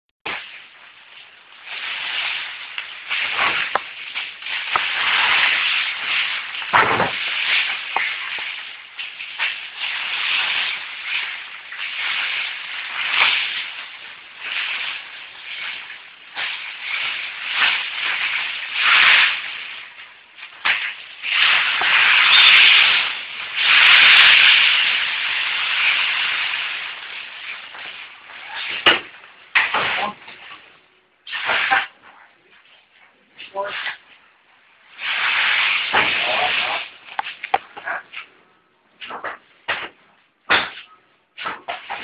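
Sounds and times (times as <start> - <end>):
shredded paper rustling and crunching: 0.3 - 28.9.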